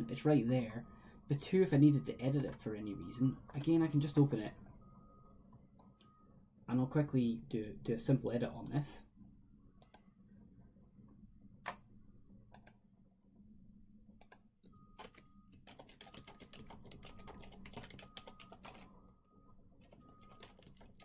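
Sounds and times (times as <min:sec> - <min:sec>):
faint keyboard typing: 0:15.0 - 0:19.0, 0:19.8 - 0:21.0.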